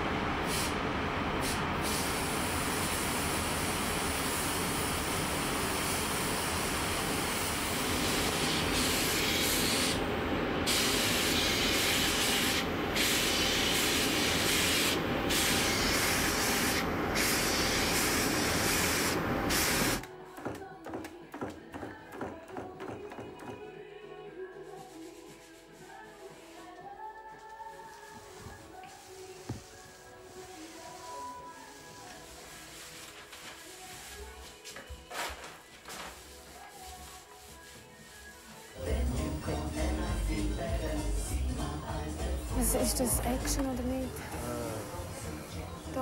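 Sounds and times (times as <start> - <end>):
paint spray gun hissing: 7.4 - 10.0, 10.7 - 20.0.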